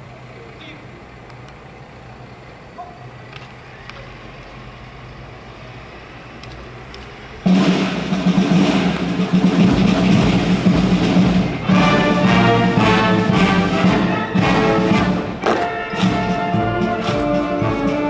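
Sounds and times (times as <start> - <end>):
marching band brass and drums: 7.4 - 18.0.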